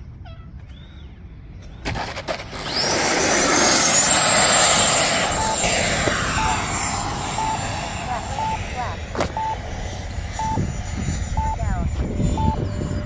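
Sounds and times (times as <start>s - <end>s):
electric ducted fan whine: 1.2s - 13.0s
short beeps: 5.1s - 9.6s, 10.3s - 11.7s, 12.3s - 12.7s.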